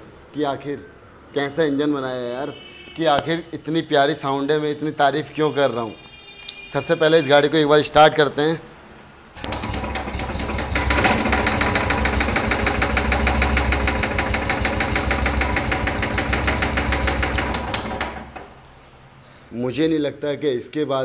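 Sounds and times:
motorcycle engine starting and running: 9.4 - 18.6.

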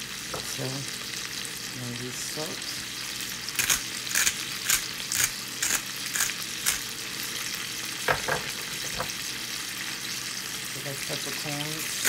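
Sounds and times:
vegetables sizzling in a frying pan: 0.0 - 12.0
seasoning shaker shaking: 3.5 - 6.9.

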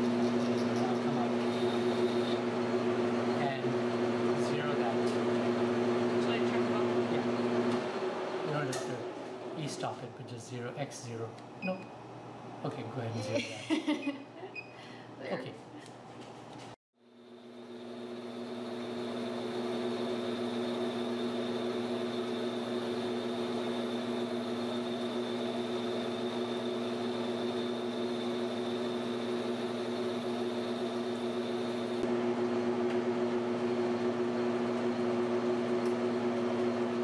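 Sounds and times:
metal lathe humming: 0.0 - 2.4, 17.2 - 32.1.

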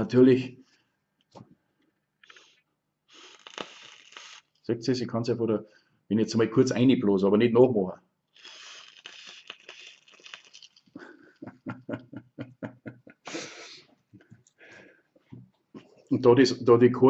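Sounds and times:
breath blown through drip tip: 2.2 - 4.6, 8.4 - 10.6
short puffs of breath: 8.4 - 10.0, 13.3 - 13.9.

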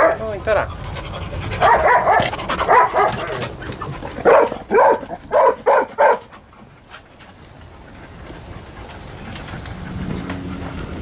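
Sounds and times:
dogs barking: 0.0 - 0.4, 1.0 - 6.4.

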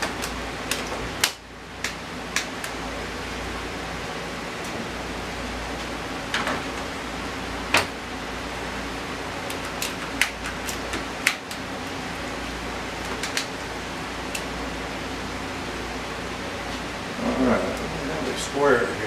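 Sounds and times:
steady shop hum: 0.0 - 19.0.

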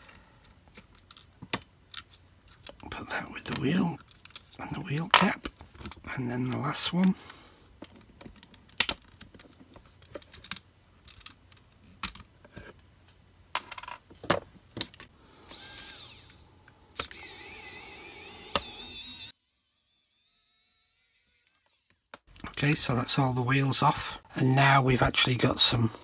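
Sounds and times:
high wavering whirring: 15.4 - 22.2.

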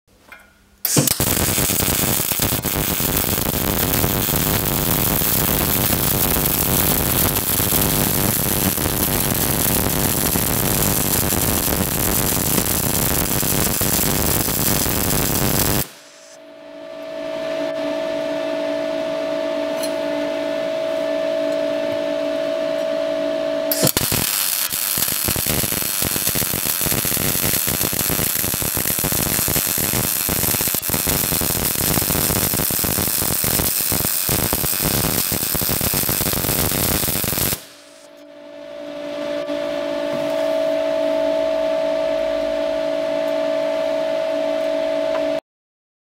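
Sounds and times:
welding arc crackling: 0.8 - 16.4, 23.7 - 38.1
steady hum: 0.8 - 45.4.

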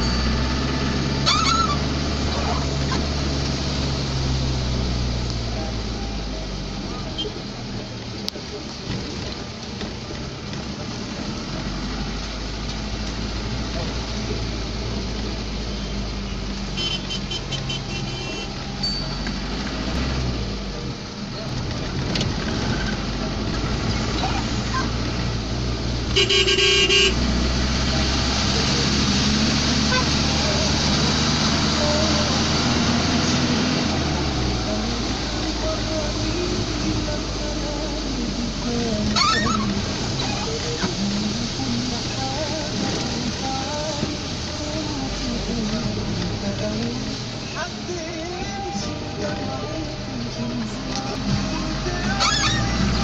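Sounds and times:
car engine running: 0.0 - 53.0
short high bending cry: 1.1 - 1.9, 52.1 - 52.8
car horn short toots: 16.8 - 18.6, 26.1 - 27.2.

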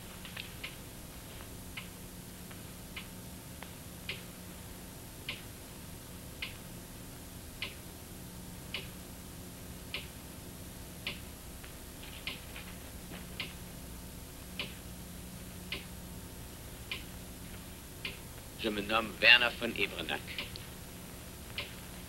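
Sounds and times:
low hum and hiss: 0.0 - 22.0
faint clicks: 11.1 - 12.5, 16.9 - 17.1, 20.3 - 20.7
clock ticking: 14.6 - 14.8.

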